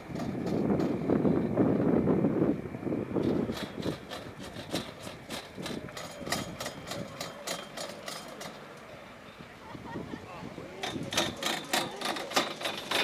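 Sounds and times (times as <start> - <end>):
chairlift clicking and rattling: 0.0 - 1.2, 3.2 - 8.9, 10.8 - 13.0.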